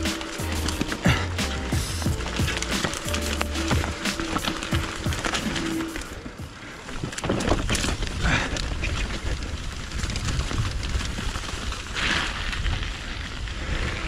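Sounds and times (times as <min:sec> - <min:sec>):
bike rattling and knocking: 0:00.0 - 0:12.6
bike tyres rumbling: 0:00.0 - 0:14.0
wind noise on microphone: 0:03.7 - 0:14.0.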